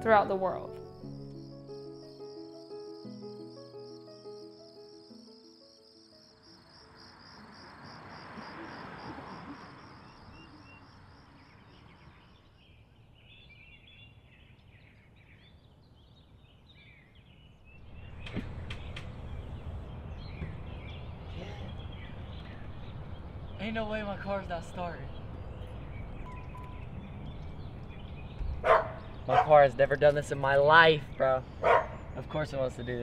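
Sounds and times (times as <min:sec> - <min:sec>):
small birds chirping: 0:00.0 - 0:33.0
sharp clicks: 0:18.2 - 0:19.2.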